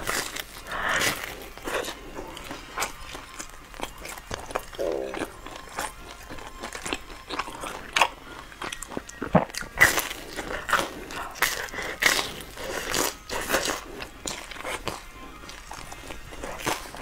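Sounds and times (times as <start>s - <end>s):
chewing crunchy food: 0.0s - 17.0s.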